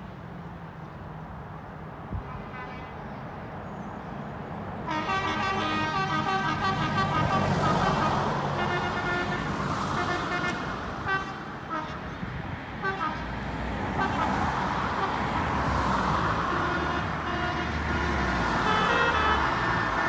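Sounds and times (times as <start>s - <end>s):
loud multi-tone horn: 4.8s - 20.0s.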